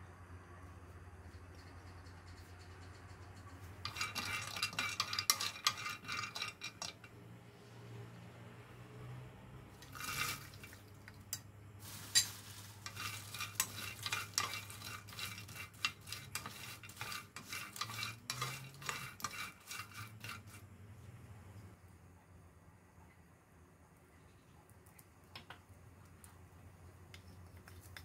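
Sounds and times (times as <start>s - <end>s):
spatula scraping pan: 3.7s - 7.2s, 9.8s - 10.8s, 11.8s - 20.7s
nuts clattering in pan: 3.8s - 7.1s, 9.8s - 10.9s, 11.8s - 20.5s.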